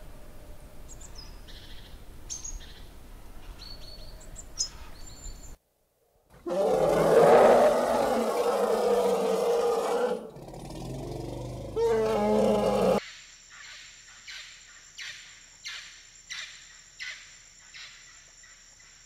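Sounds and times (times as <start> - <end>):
deep animal roar: 6.4 - 13.0.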